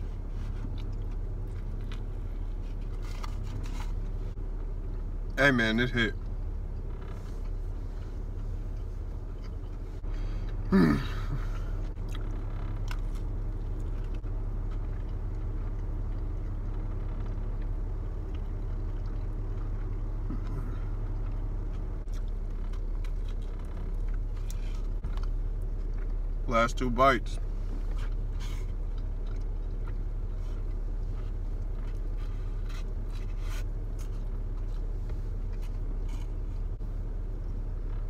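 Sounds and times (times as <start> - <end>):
man chewing: 0.0 - 5.4, 6.2 - 26.5, 27.4 - 38.0
car interior hum: 0.0 - 38.0.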